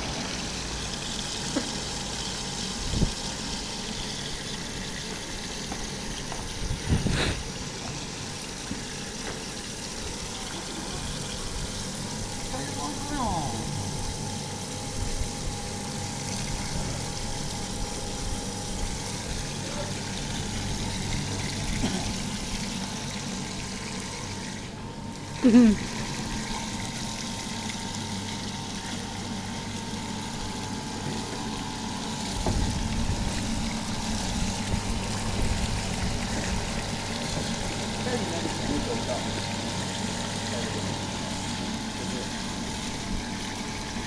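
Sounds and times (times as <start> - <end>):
pump hum: 0.0 - 44.0.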